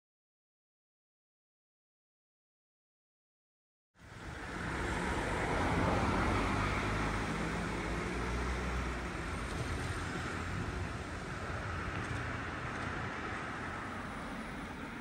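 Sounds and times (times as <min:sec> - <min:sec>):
passing vehicle rumble: 0:04.0 - 0:15.0
road traffic rush: 0:04.0 - 0:15.0.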